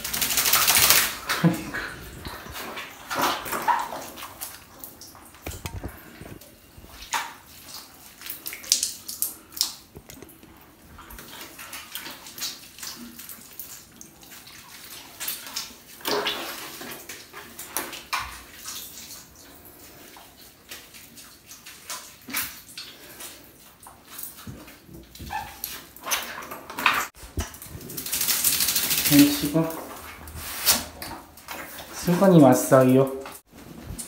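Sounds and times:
water splashing: 0:00.0 - 0:10.2, 0:10.8 - 0:34.0
rubbing of wet fur: 0:27.1 - 0:32.8.

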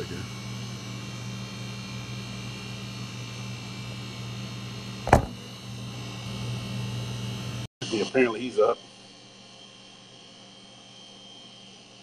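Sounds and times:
phone handling knock: 0:05.1 - 0:05.4.

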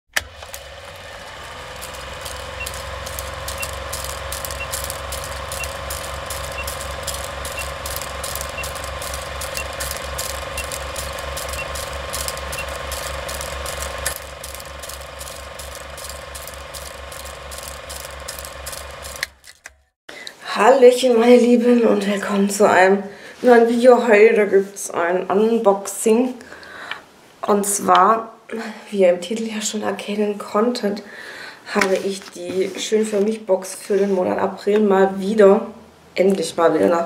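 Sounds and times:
film projector clatter: 0:00.1 - 0:19.8.

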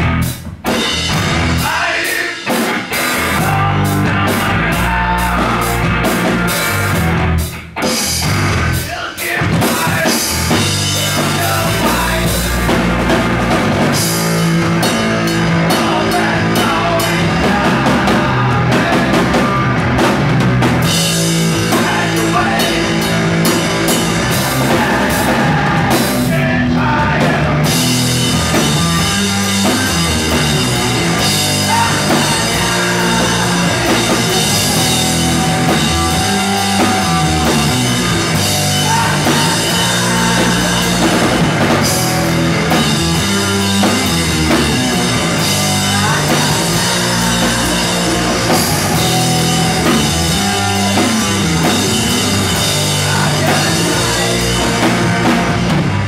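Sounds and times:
drum kit: 0:00.0 - 0:56.0
electric guitar: 0:00.0 - 0:56.0.

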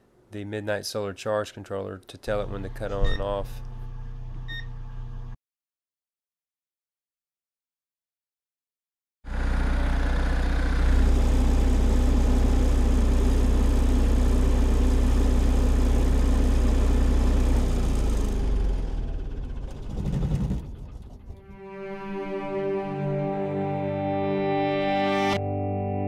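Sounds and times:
diesel generator running down: 0:02.4 - 0:05.4, 0:09.3 - 0:21.6.

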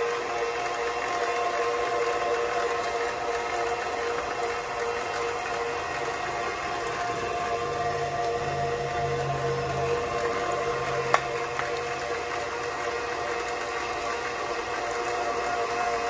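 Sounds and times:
stand mixer motor whine: 0:00.0 - 0:16.0.

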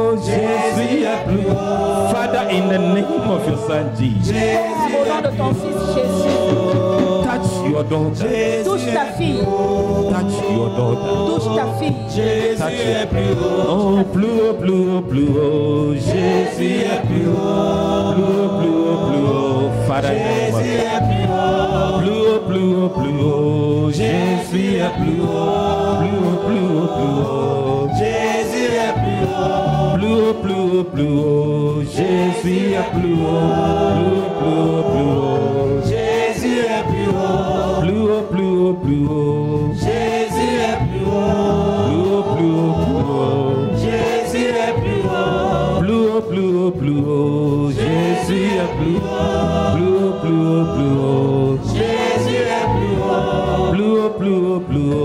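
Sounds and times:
group singing gospel chorus: 0:00.0 - 0:55.0
musical backing: 0:00.0 - 0:55.0.

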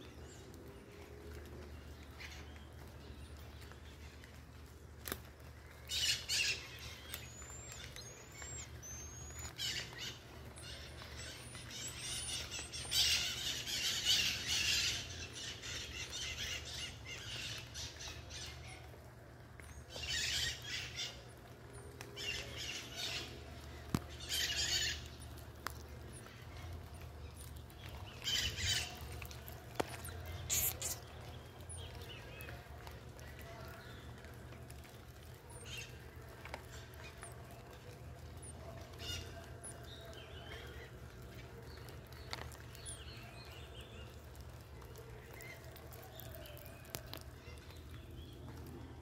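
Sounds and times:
marmosets chirping and chattering: 0:05.9 - 0:18.6, 0:24.0 - 0:32.4, 0:38.3 - 0:40.9, 0:41.8 - 0:44.1, 0:45.3 - 0:47.2.

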